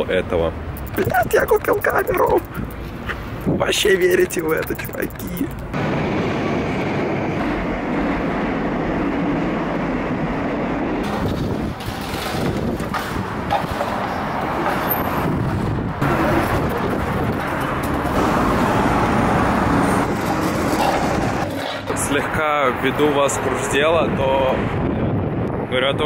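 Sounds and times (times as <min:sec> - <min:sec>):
escalator noise: 0:00.7 - 0:06.2
rail train noise: 0:05.3 - 0:21.9.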